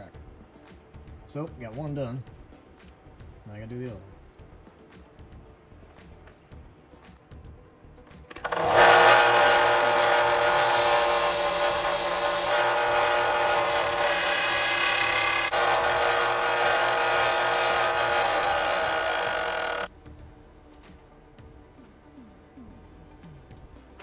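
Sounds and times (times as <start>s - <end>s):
metal nut grinding on belt: 8.3s - 19.9s
sander motor whine: 8.4s - 19.9s.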